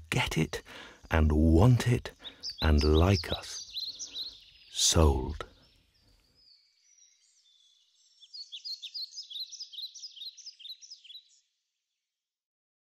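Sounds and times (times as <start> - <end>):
small bird twittering: 2.0 - 11.4.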